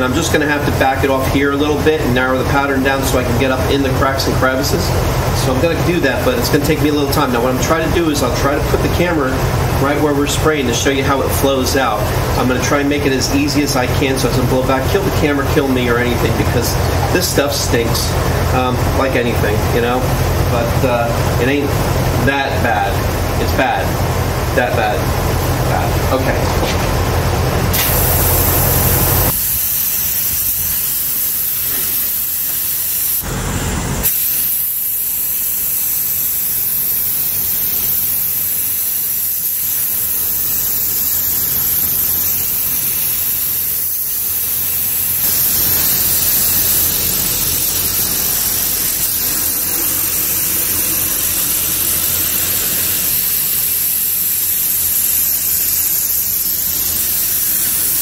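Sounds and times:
spray gun hissing: 27.7s - 58.0s.

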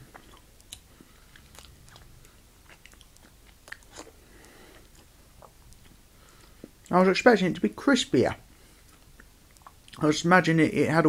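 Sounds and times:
person chewing: 0.0s - 6.9s, 8.8s - 10.0s.

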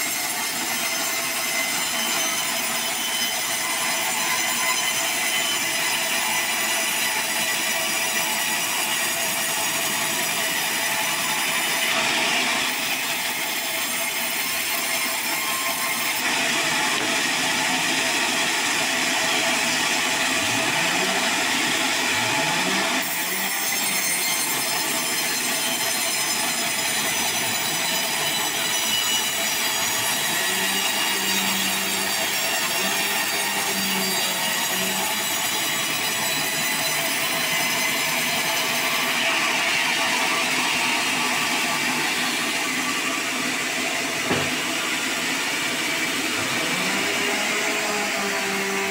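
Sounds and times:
band saw cutting log: 0.0s - 48.9s
high whine of saw blade: 0.0s - 48.9s.

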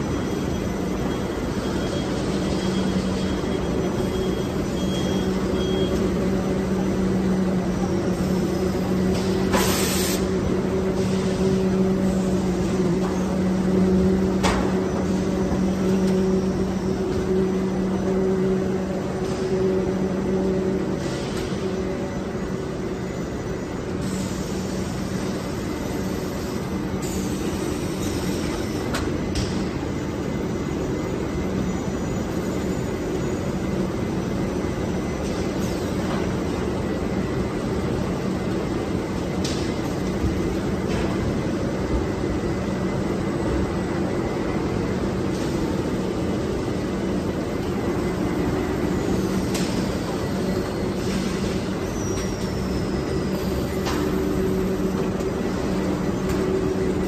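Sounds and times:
factory machinery humming: 0.0s - 57.0s.

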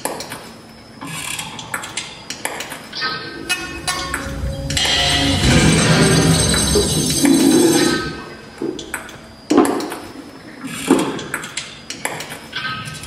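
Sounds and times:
loud sustained sound: 3.2s - 8.4s.

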